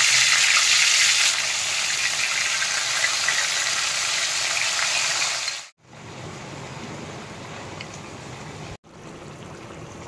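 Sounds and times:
chicken frying in hot oil: 0.0s - 5.8s.

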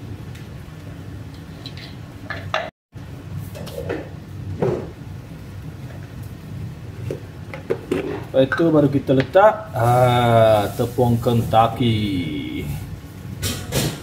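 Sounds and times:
steady low hum: 3.0s - 14.0s.

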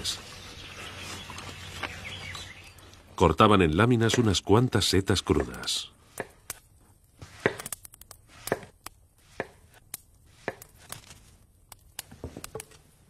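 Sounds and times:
knife chopping mushrooms: 7.2s - 7.7s, 8.4s - 8.7s, 9.3s - 9.6s, 10.3s - 10.7s.

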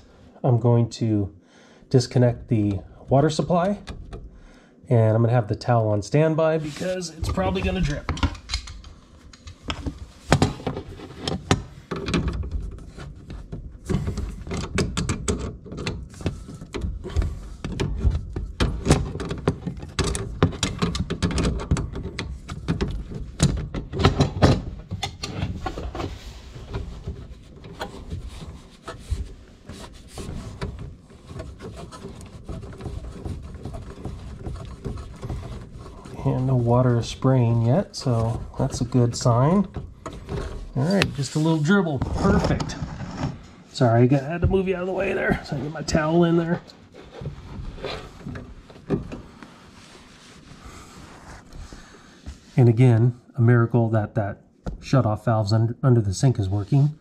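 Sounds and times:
tool handling noise: 6.6s - 50.1s
metal clicks and knocks: 7.2s - 37.0s.

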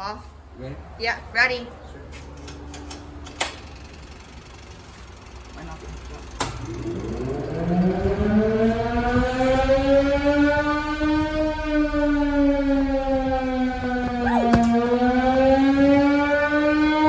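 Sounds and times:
fire siren winding up: 6.3s - 17.0s.

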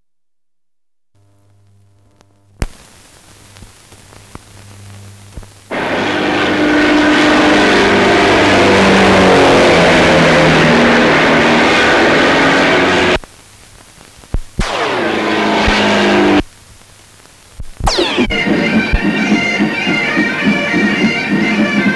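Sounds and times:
film soundtrack hiss: 1.2s - 8.5s, 10.5s - 21.9s
low hum: 4.6s - 13.3s, 14.6s - 17.0s, 17.6s - 21.9s
music with sustained notes: 17.9s - 21.9s.

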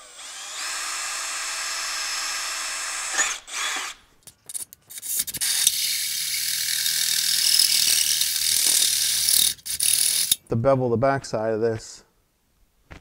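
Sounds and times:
cordless drill whine: 0.0s - 4.0s
drill grinding into aluminium: 0.0s - 4.0s, 4.9s - 10.4s.

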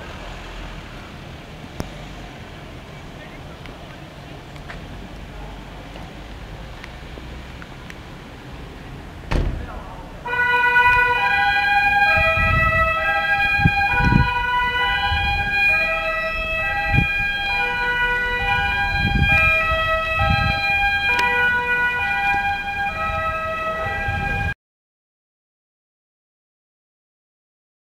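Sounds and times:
two-tone siren: 10.3s - 24.6s.

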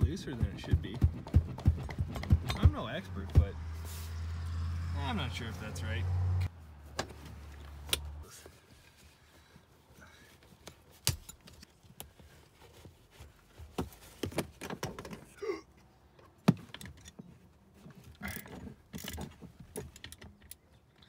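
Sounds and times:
rustling: 6.7s - 14.6s
metal clicks and knocks: 18.3s - 21.0s.

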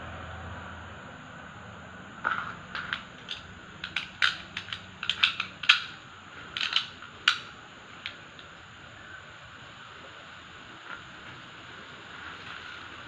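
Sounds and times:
metal parts clicking and clinking: 2.2s - 8.5s.

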